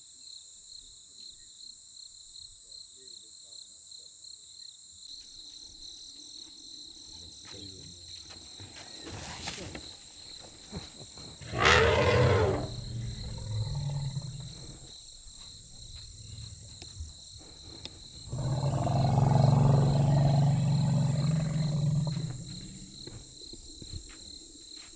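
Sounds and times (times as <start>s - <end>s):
elephant calling: 11.4s - 14.9s.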